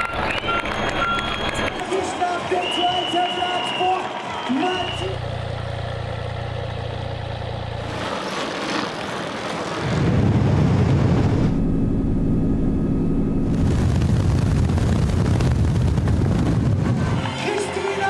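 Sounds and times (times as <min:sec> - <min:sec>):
engine drone with rushing air: 0:04.2 - 0:18.0.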